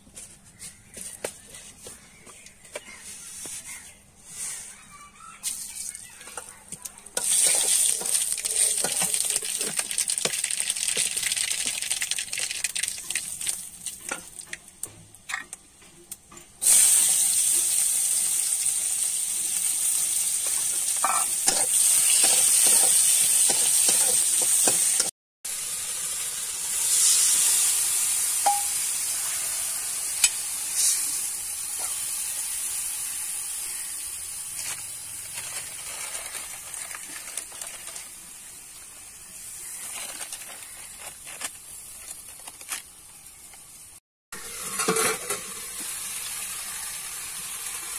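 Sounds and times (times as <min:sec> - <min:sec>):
hot oil sizzling in a pan: 0:07.2 - 0:14.5, 0:16.6 - 0:42.3, 0:42.9 - 0:47.9
metal spatula scraping a pan: 0:20.4 - 0:25.1, 0:44.5 - 0:45.6.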